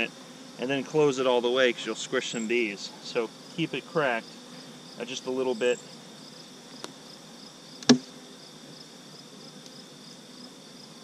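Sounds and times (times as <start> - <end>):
insects chirping: 0.0 - 11.0
hive tool knocking on wood: 7.8 - 8.2.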